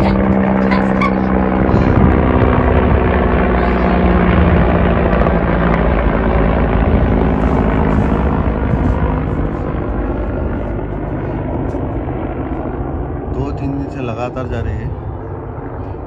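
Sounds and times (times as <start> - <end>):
helicopter flying overhead: 0.0 - 16.0.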